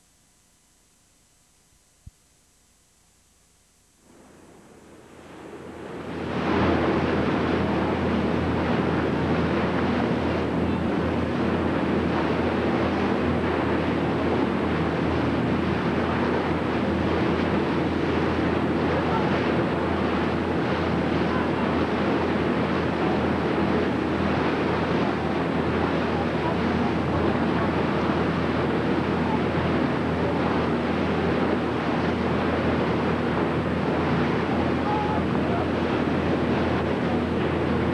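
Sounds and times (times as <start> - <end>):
boat engine drone: 3.8 - 37.9
water rushing along hull: 4.0 - 37.9.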